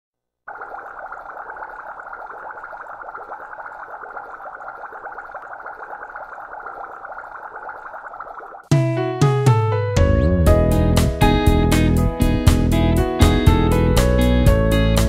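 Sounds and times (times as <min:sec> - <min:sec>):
stream water heard underwater: 0:00.5 - 0:08.7.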